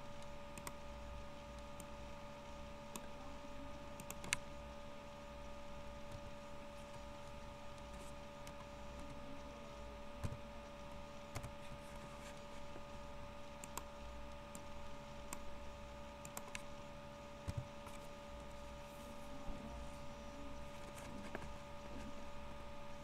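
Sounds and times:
steady background hum: 0.0s - 23.0s
computer mouse clicks: 0.2s - 0.8s, 4.0s - 4.6s, 10.2s - 12.8s, 13.6s - 15.5s, 16.2s - 16.8s, 17.4s - 18.6s
keyboard key presses: 11.3s - 12.4s, 17.4s - 18.5s.

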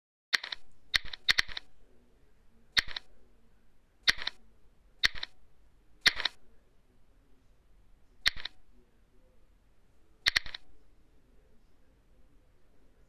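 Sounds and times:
sharp clicks: 0.4s - 1.7s, 2.8s - 3.1s, 4.1s - 4.4s, 5.0s - 5.4s, 6.0s - 6.4s, 8.2s - 8.6s, 10.3s - 10.7s.

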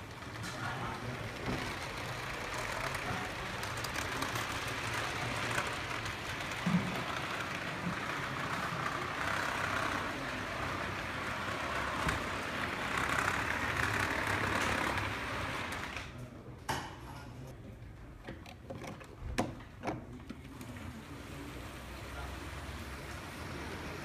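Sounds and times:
model train wheels rattling on rail: 0.0s - 16.1s.

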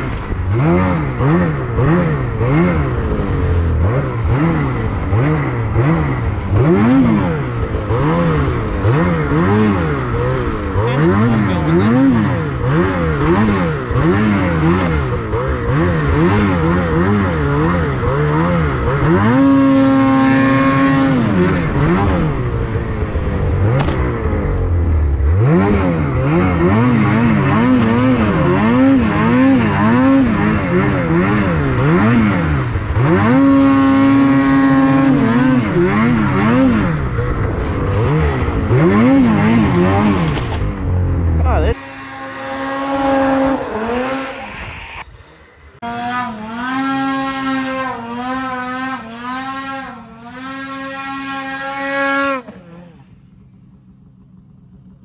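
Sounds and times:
snowmobile engine revving: 0.0s - 54.1s.

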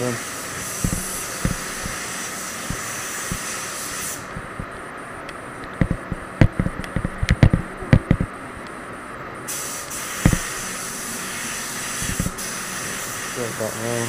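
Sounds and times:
spray booth airflow rushing: 0.0s - 4.7s, 9.5s - 14.0s
spray gun hissing: 0.0s - 4.7s, 9.5s - 14.0s
knocks and thumps: 0.8s - 2.0s, 5.8s - 8.3s.

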